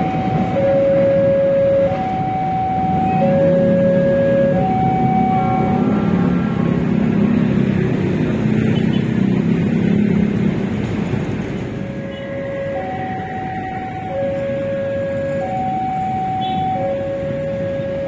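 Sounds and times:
two-note warning tone: 0:00.5 - 0:05.8.

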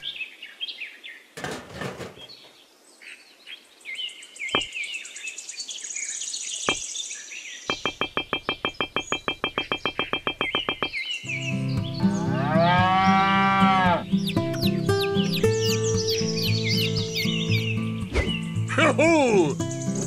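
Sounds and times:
birds chirping: 0:00.0 - 0:20.0
high bird trill: 0:07.6 - 0:20.0
sharp clicks: 0:07.7 - 0:11.0.

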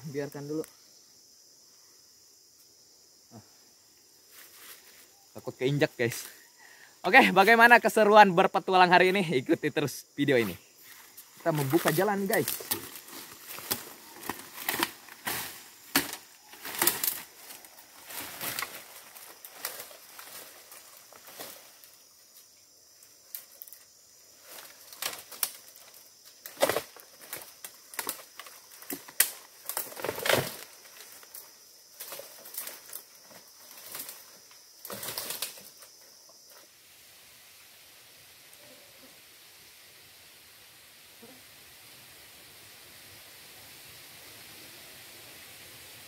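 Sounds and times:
leaves rustling and stems snapping: 0:10.9 - 0:22.5, 0:23.2 - 0:36.0.

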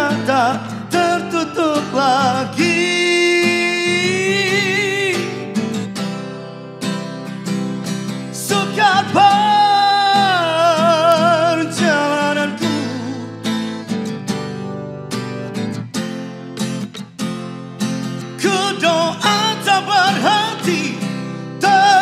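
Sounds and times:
man singing with vibrato: 0:00.0 - 0:05.6, 0:08.3 - 0:13.6, 0:18.3 - 0:22.0
strummed acoustic guitar: 0:00.0 - 0:22.0.

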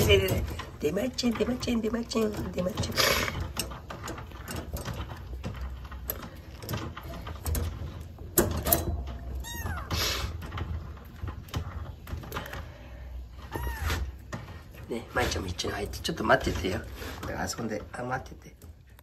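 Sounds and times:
handling clicks and rustles: 0:00.0 - 0:19.0.

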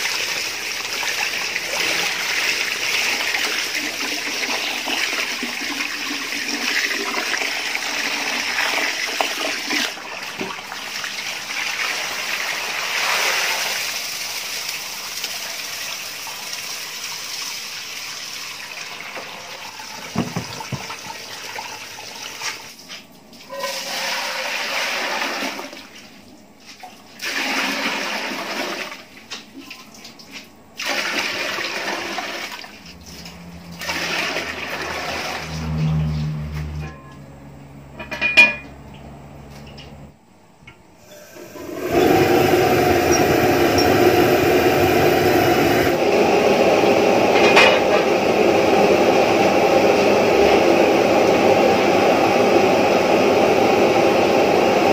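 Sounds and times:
water pouring into metal pot: 0:00.0 - 0:17.0, 0:33.7 - 0:36.0, 0:41.1 - 0:46.0
hose water running into bucket: 0:00.0 - 0:36.4, 0:41.1 - 0:54.9.

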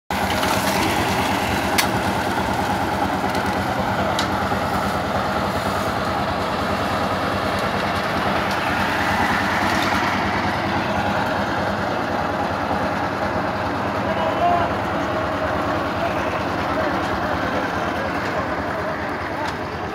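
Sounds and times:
machinery engine running: 0:00.1 - 0:19.9.

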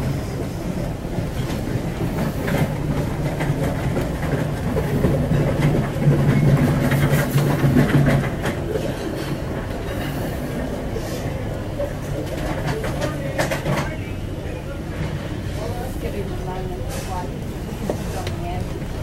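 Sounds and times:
diesel engines droning: 0:14.1 - 0:19.0.

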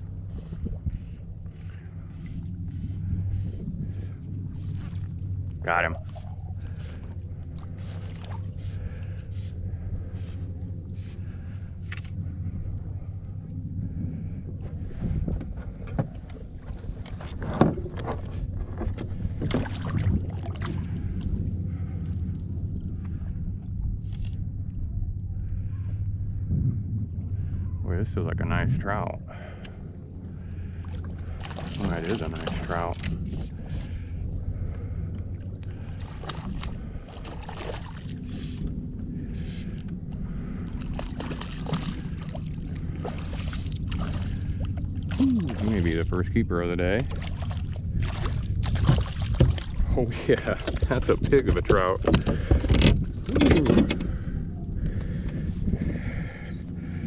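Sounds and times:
wind on microphone: 0:00.0 - 0:29.5, 0:31.0 - 0:57.0
steady low rumble: 0:00.0 - 0:57.0
water splashing against hull: 0:00.0 - 0:57.0
short splashes: 0:16.9 - 0:21.2, 0:30.7 - 0:34.1, 0:35.7 - 0:38.6, 0:40.7 - 0:46.1, 0:46.9 - 0:51.0.

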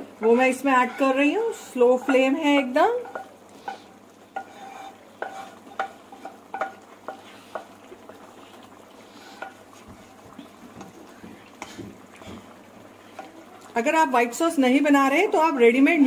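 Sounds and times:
sauce sizzling faintly: 0:00.0 - 0:16.0
spatula scraping pan: 0:00.2 - 0:10.2, 0:10.8 - 0:13.4
utensil clicking against pan: 0:05.2 - 0:07.8.

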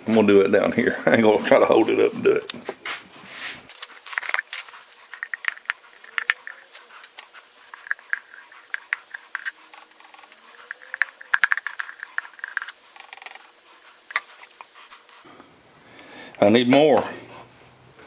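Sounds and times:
spoon scraping and tapping jar: 0:04.0 - 0:13.5.

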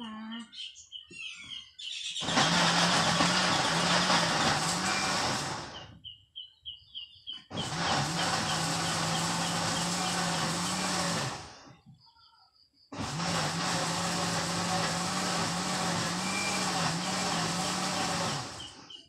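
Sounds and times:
electric blender running: 0:02.2 - 0:05.8, 0:07.5 - 0:11.7, 0:13.0 - 0:18.9.

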